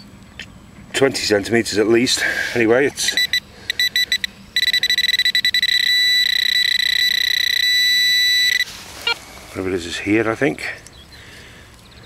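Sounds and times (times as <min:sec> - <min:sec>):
metal detector probe beeping: 0:03.0 - 0:09.2.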